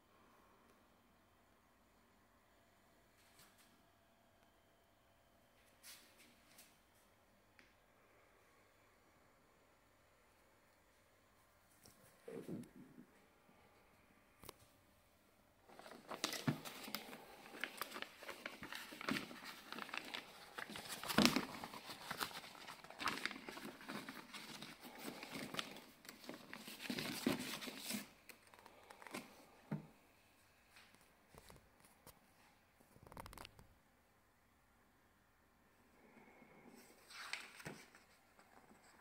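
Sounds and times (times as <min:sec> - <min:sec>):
plastic sleeve crinkling: 0:15.6 - 0:29.3
soft paper rustles: 0:15.6 - 0:30.0, 0:30.7 - 0:33.7, 0:36.0 - 0:39.0.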